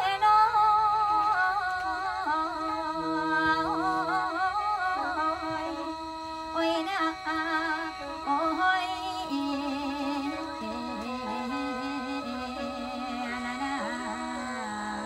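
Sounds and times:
mouth organ melody over drone: 0:00.0 - 0:15.0.

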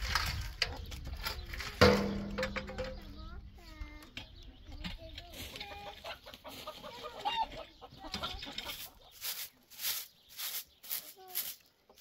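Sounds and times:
chickens clucking: 0:00.3 - 0:12.0
straw broom sweeping: 0:08.6 - 0:12.0.

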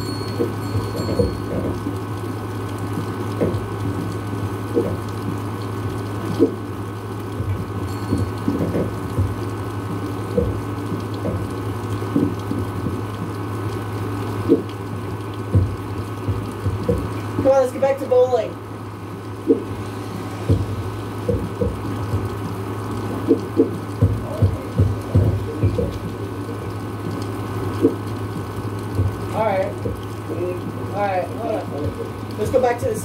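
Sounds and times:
low hum: 0:00.0 - 0:32.4
drips tapping on surface: 0:00.0 - 0:33.0
steady rain: 0:00.0 - 0:33.0.

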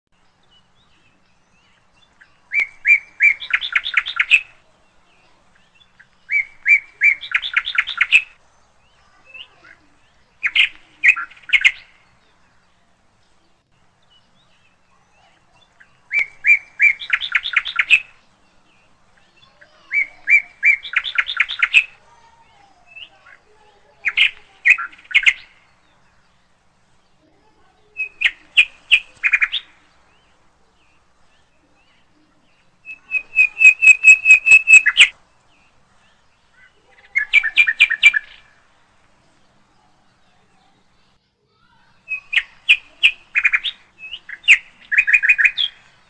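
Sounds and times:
songbird singing: 0:00.1 - 0:46.0.

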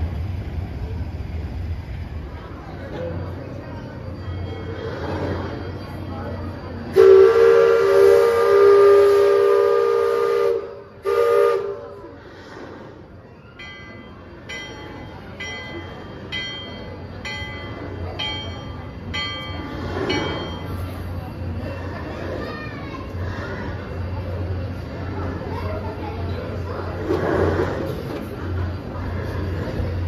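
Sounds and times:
steam whistle blast: 0:06.9 - 0:12.2.

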